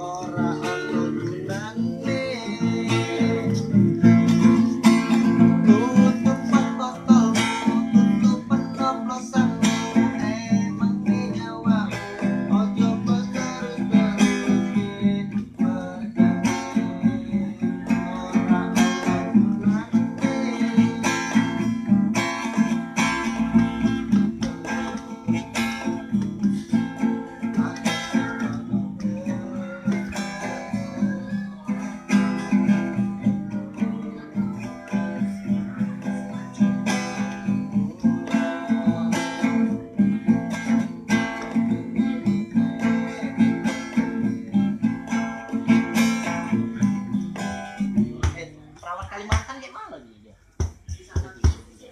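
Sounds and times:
acoustic guitar strumming: 0.0 - 49.8.

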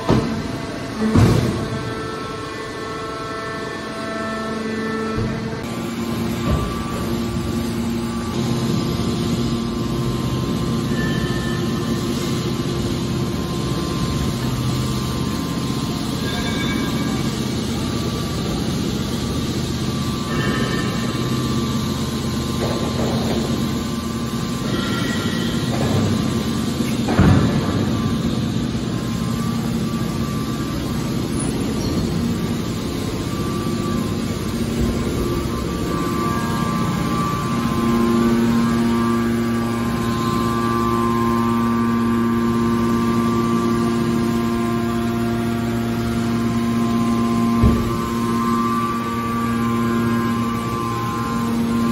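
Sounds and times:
hydraulic baler motor humming: 0.0 - 51.9.

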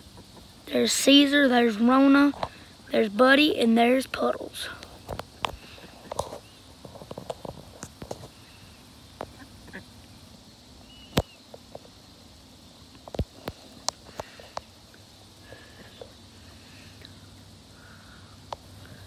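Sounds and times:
faint high duck calls: 9.2 - 10.0.

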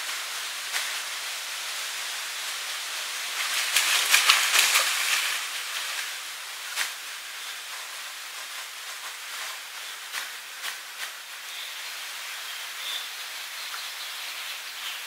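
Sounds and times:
steady hiss: 0.0 - 15.0
sharp splash: 2.3 - 7.5
splashy steps in water: 3.2 - 6.2.

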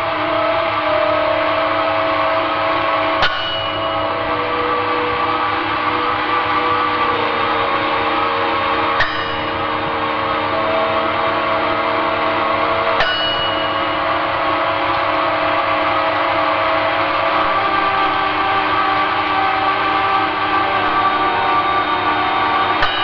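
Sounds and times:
dark ambient drone music: 0.0 - 23.0
sharp struck hits ringing: 3.2 - 8.2, 8.8 - 16.6, 22.7 - 23.0.

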